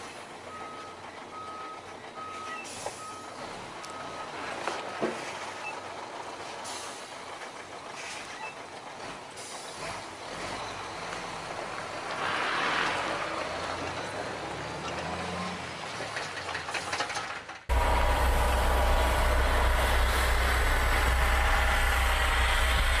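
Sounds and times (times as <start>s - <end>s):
truck diesel engine running: 17.6s - 23.0s.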